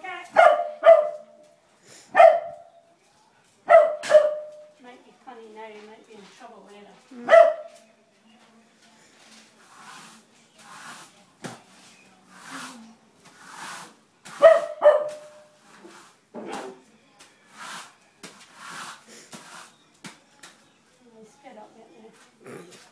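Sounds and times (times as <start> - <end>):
broom sweeping paved floor: 0.1 - 22.9
puppy barking: 0.3 - 1.4, 2.1 - 2.7, 3.7 - 4.7, 7.2 - 7.8, 14.4 - 15.5.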